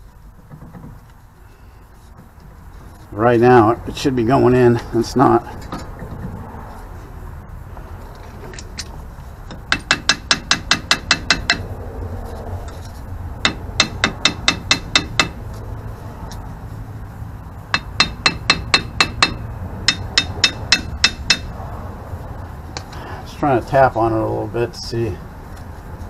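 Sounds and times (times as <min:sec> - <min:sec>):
hammer tapping on metal: 0:09.5 - 0:11.7, 0:13.4 - 0:15.4, 0:17.7 - 0:21.6.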